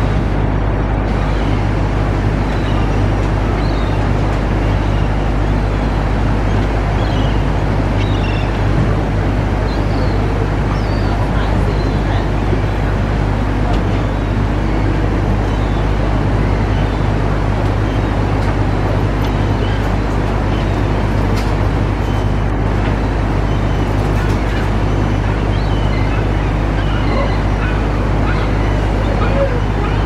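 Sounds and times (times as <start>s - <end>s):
faint bird calls: 9.6s - 12.9s, 23.1s - 30.0s.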